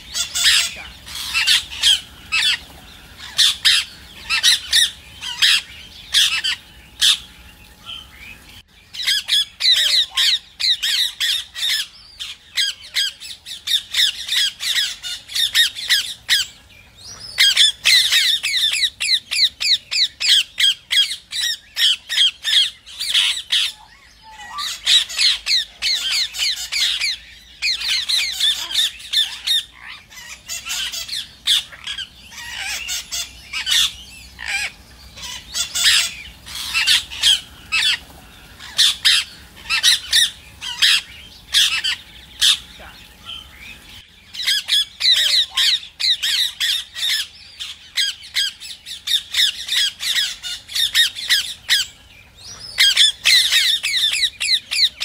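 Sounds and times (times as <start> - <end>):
parakeets squawking: 0.0 - 55.0.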